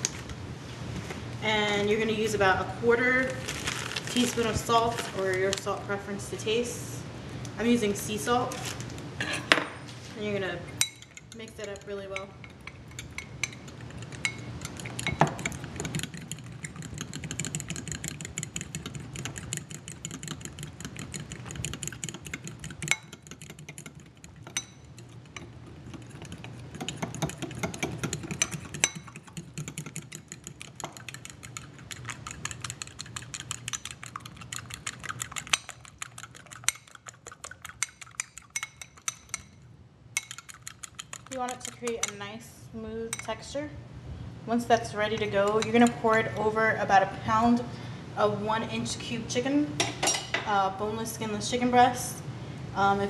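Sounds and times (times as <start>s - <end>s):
whisk clicking against glass bowl: 10.8s - 39.6s, 40.2s - 42.2s.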